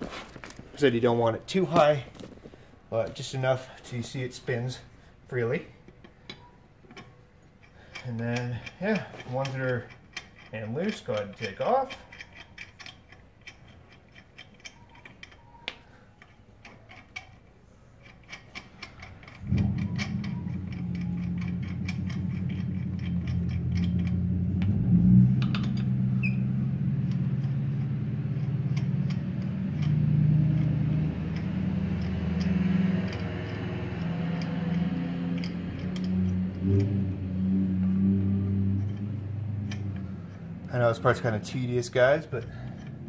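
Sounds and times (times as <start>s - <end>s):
lug nuts clicking metallically: 0.0s - 43.0s.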